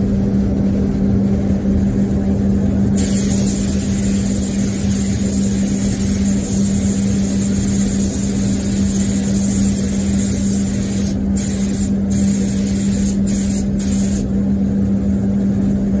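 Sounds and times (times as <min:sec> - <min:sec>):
low hum: 0:00.0 - 0:16.0
air spray gun hissing: 0:03.0 - 0:14.4.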